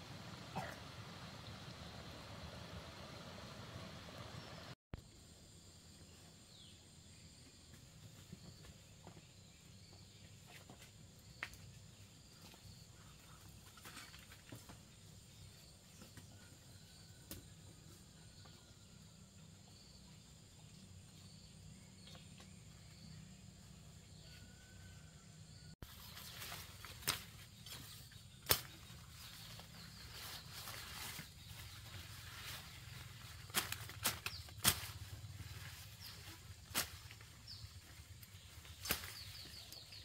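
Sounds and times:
footsteps rustling leaves: 25.8s - 39.4s.

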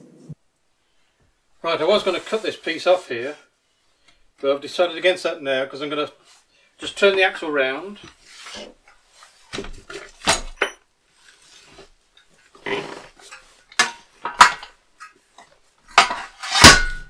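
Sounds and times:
metal parts knocking and clattering: 13.3s - 15.1s, 15.9s - 17.0s.

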